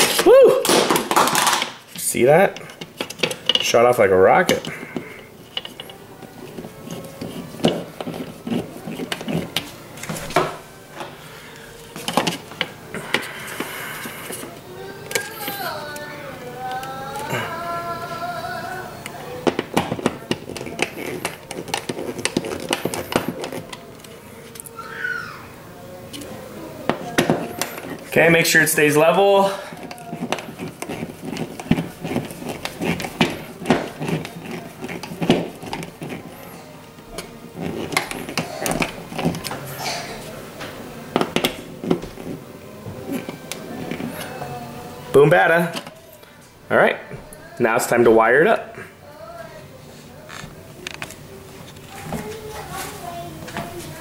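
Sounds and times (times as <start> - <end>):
screwdriver driving screws: 19.5 - 24.1, 29.8 - 36.2.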